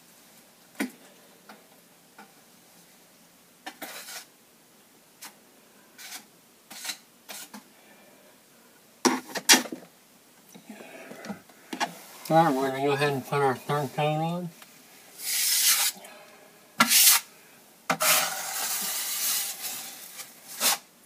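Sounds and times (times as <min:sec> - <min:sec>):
metal knife scraping a pan: 0:06.0 - 0:07.6, 0:17.9 - 0:19.3.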